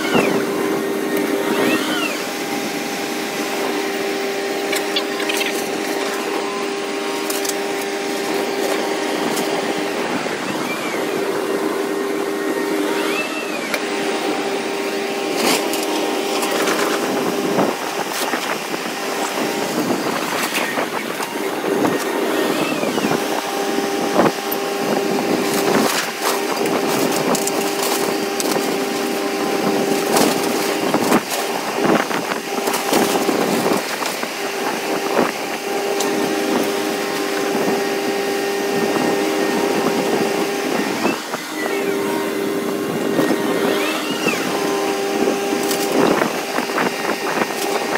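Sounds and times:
excavator engine running: 0.0s - 47.9s
wood cracking and splintering: 4.6s - 9.8s, 15.1s - 17.4s, 23.4s - 37.9s, 43.8s - 46.9s.

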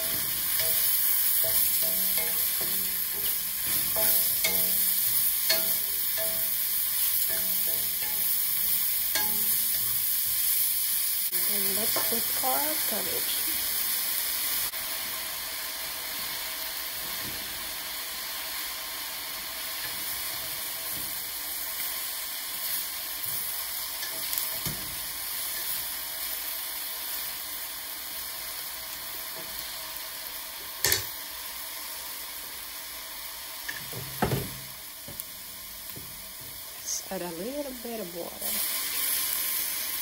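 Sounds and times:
spatula knocking on pan: 0.0s - 10.0s, 11.9s - 12.2s, 33.8s - 35.2s
cabbage sizzling in a pan: 0.0s - 40.0s.

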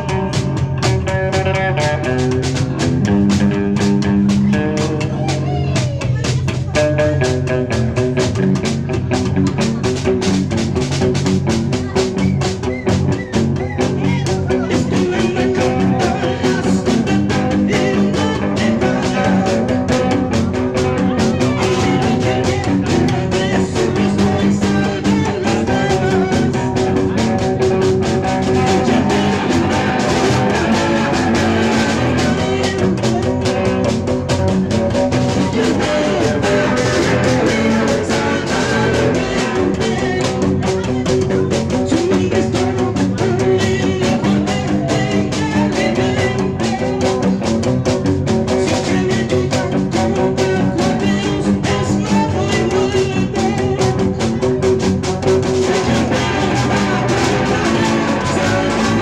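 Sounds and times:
drums played with sticks: 0.0s - 59.0s
electric guitar: 0.0s - 59.0s
upright double bass: 0.0s - 59.0s.

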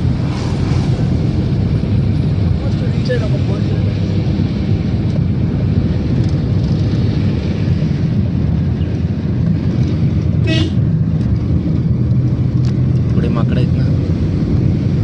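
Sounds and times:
vehicle engine and road noise: 0.0s - 15.0s
car horn toot: 10.4s - 10.8s.

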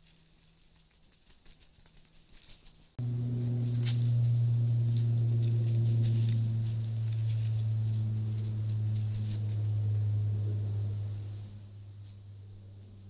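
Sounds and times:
faint ticks and rustles: 0.0s - 3.0s
steady low hum: 1.3s - 13.0s.

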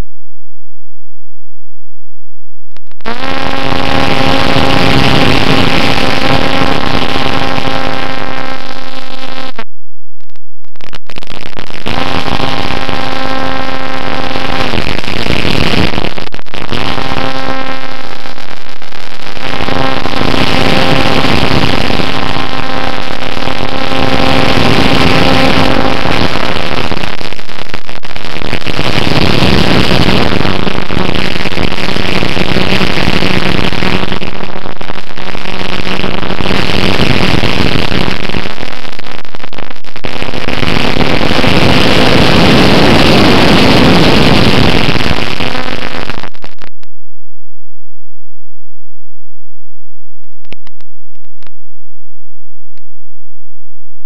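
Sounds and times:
wind rush: 28.5s - 45.4s.

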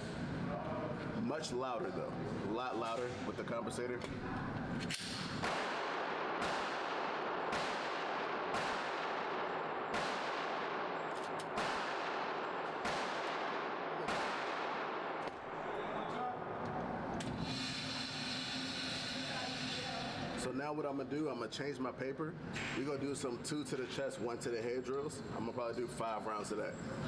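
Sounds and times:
pistol shots echoing indoors: 4.9s - 16.2s.

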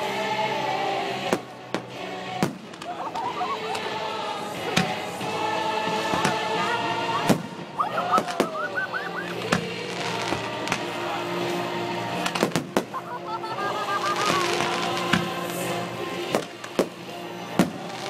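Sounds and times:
background music: 0.0s - 18.0s
fireworks bursting: 1.2s - 11.1s, 12.1s - 18.0s.

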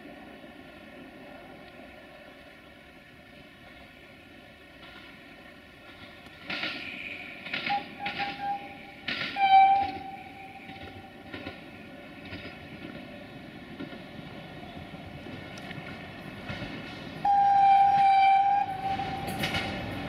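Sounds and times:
train running rumble: 0.0s - 20.0s
train horn blasts: 7.6s - 11.1s, 17.2s - 19.9s.

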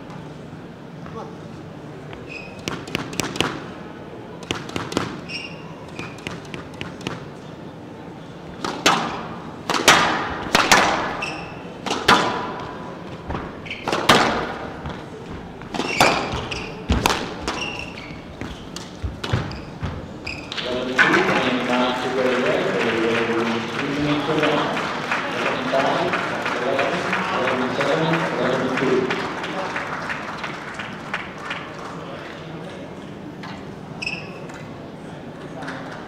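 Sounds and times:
squash ball hits: 2.6s - 3.7s, 4.4s - 5.3s, 8.6s - 15.0s, 15.6s - 20.2s
shoes squeaking on wooden floor: 11.1s - 11.7s, 13.0s - 14.1s, 14.8s - 20.8s.

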